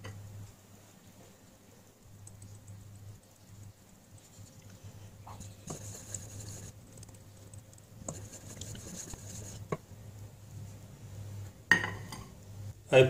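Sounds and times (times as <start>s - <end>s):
wooden spoon scraping a pot: 5.3s - 6.7s, 8.0s - 9.8s.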